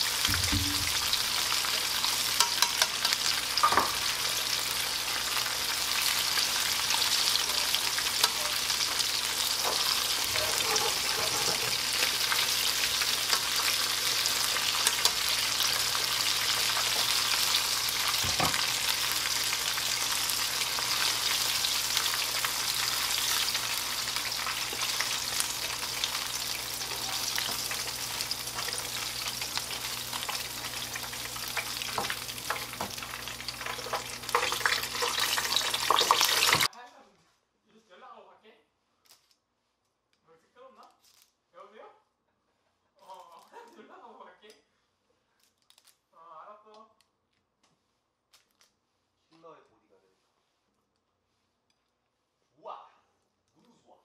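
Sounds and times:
ribs deep-frying in oil: 0.0s - 36.7s.

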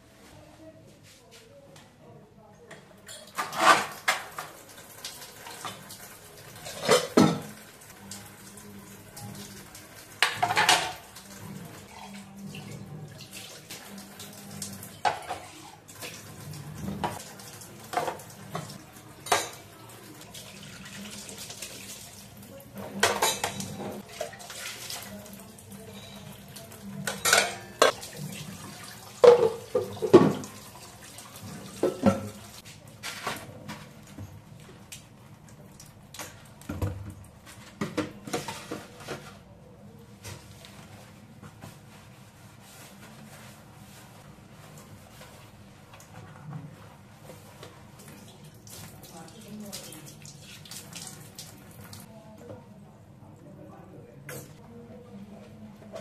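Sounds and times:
dishes clattering in sink: 2.7s - 8.3s, 9.1s - 34.4s, 36.1s - 39.5s
tap water running into sink: 12.6s - 32.6s, 47.5s - 52.0s.

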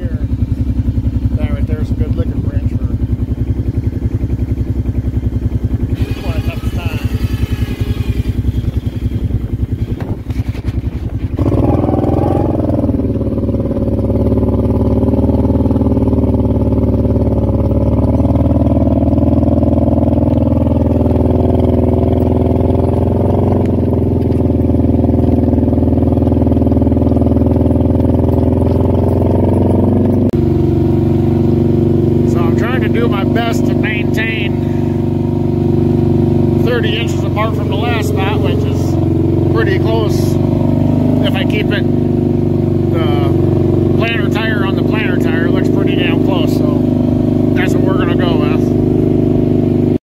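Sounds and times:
atv engine revving under load: 0.0s - 50.0s.

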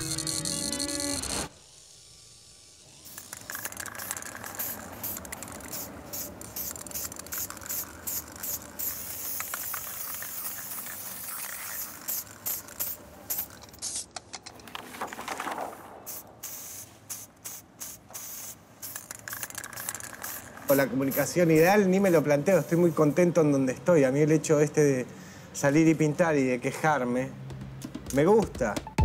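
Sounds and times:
spray paint can hissing: 0.0s - 14.2s, 16.1s - 23.3s.

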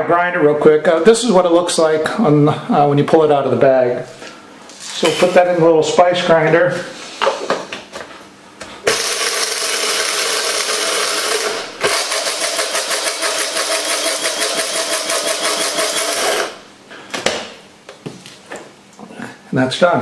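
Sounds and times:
spice grinder motor whine: 8.9s - 16.6s.

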